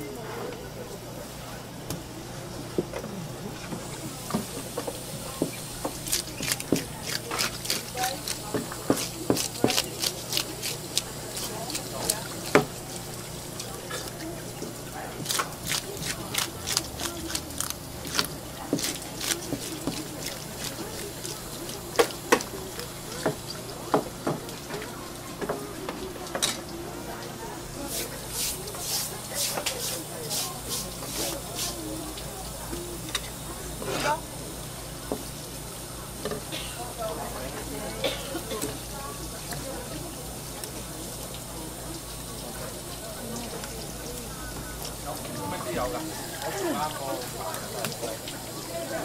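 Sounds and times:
water hissing from a hose: 3.8 - 24.8, 27.8 - 34.6, 38.4 - 49.0
tap water splashing: 4.0 - 9.8, 12.0 - 13.0, 18.0 - 26.8, 47.2 - 48.4
fish scaler scraping scales: 5.8 - 14.2.

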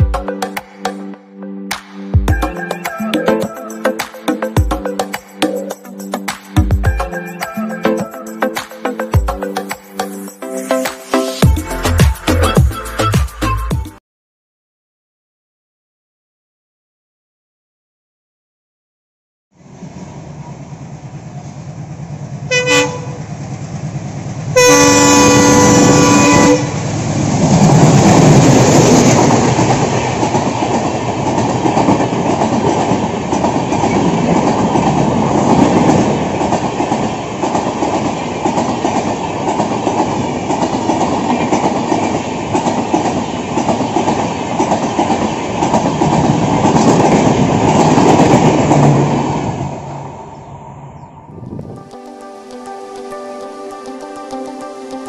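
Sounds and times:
diesel locomotive engine running: 19.6 - 33.6
train wheels clickety-clack: 21.3 - 49.6
train horn: 22.5 - 23.3, 24.6 - 26.9.

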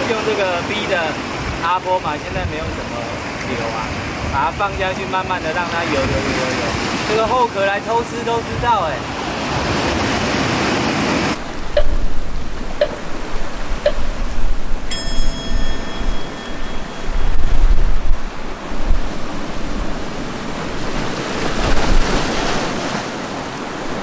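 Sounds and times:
sea waves on rocky shore: 0.0 - 24.0
wind buffeting microphone: 11.0 - 24.0
high ringing tone: 11.6 - 13.2, 13.8 - 19.6.

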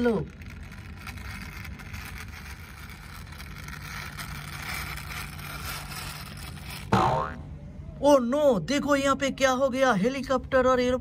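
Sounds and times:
toy car wheels rolling on floor: 0.0 - 6.9
faint low hum: 0.0 - 11.0.

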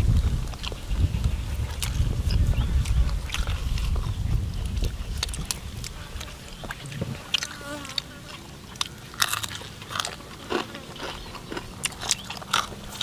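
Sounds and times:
wind rumble on microphone: 0.0 - 7.8
lip smacks and chewing clicks: 1.7 - 8.0, 8.7 - 13.0.

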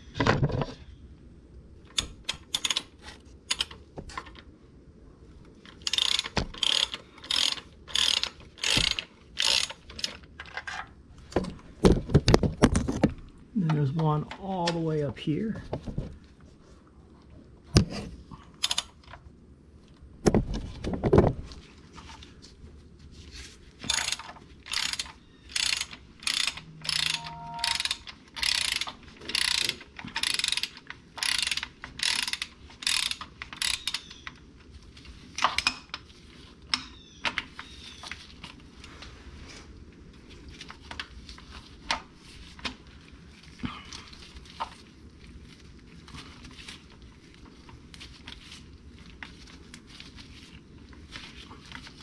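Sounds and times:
socket ratchet clicking: 1.9 - 3.8, 5.8 - 10.2, 23.9 - 34.1.

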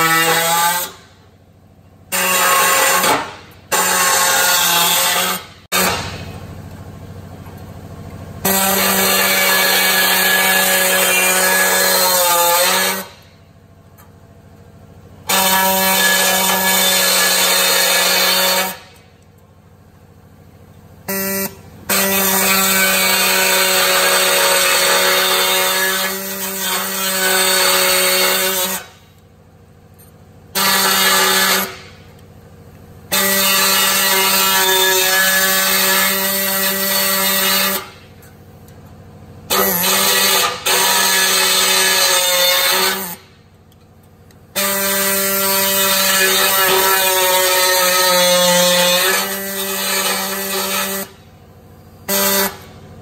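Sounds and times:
die grinder whining: 0.0 - 1.1, 2.1 - 6.5, 8.3 - 13.2, 15.2 - 19.0, 21.1 - 29.0, 30.5 - 32.2, 33.0 - 38.2, 39.4 - 43.3, 44.3 - 51.4, 52.0 - 53.0.

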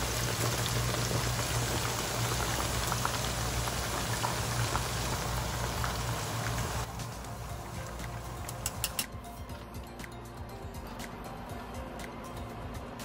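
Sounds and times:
chicken deep-frying in hot oil: 0.0 - 9.1.

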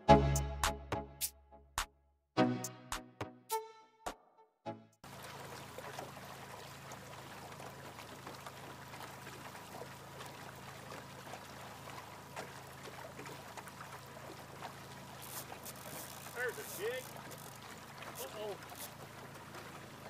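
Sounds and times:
water lapping against boat hull: 5.0 - 20.0.

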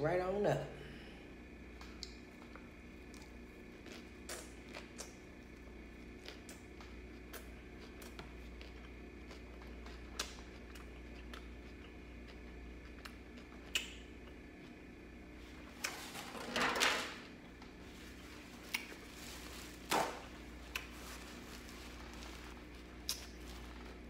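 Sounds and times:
steady low hum: 0.0 - 24.0
quiet chewing: 1.7 - 16.0, 17.5 - 24.0.

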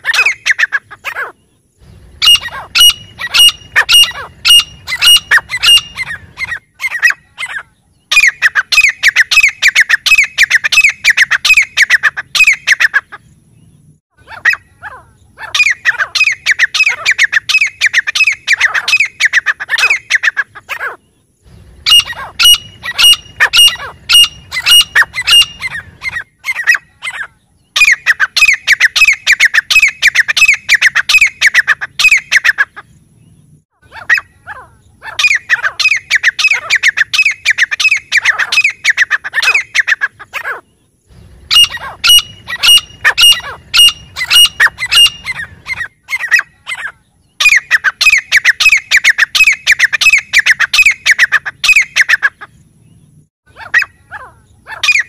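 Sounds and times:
francolin calling shrill notes: 21.8 - 25.9, 41.5 - 52.2.

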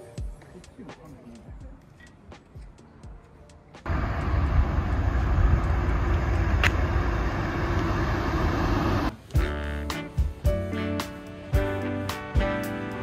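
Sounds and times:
road traffic rumble: 3.8 - 9.2
single click: 6.6 - 6.8.

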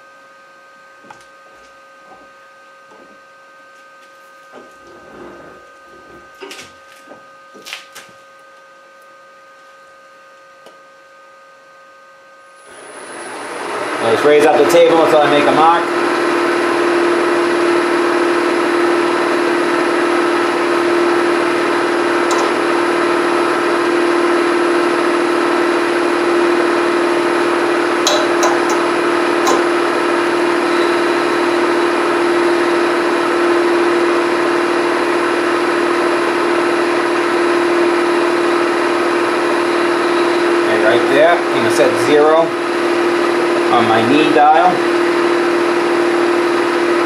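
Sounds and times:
milling machine spindle running: 12.6 - 47.0.

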